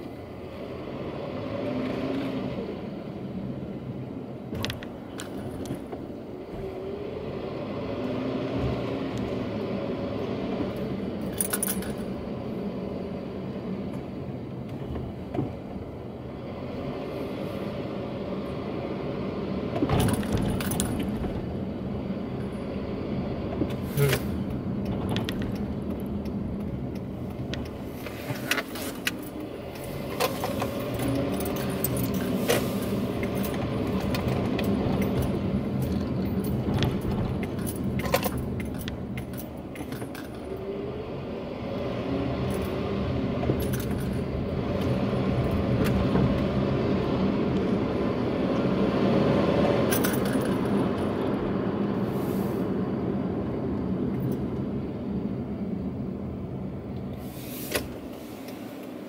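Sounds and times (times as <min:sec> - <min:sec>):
engine and tyre rumble: 0:00.0 - 0:59.0
jingling clicks and rattles: 0:11.2 - 0:12.1, 0:20.0 - 0:21.2, 0:28.4 - 0:32.5, 0:33.2 - 0:40.6, 0:49.9 - 0:51.1.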